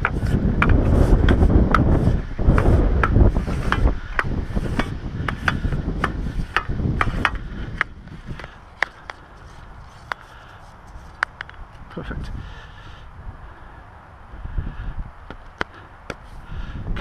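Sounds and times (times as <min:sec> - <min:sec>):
wind rumble on microphone: 0:00.0 - 0:17.0
antenna sections clicking: 0:06.5 - 0:11.9.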